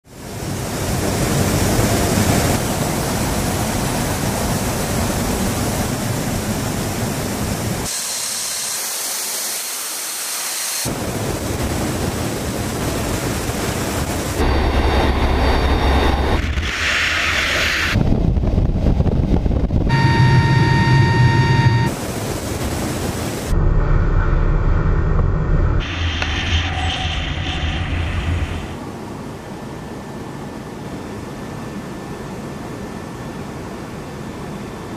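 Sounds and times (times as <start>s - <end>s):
wind rushing: 10.9s - 20.8s, 21.8s - 29.1s
steady high tone: 19.9s - 22.0s.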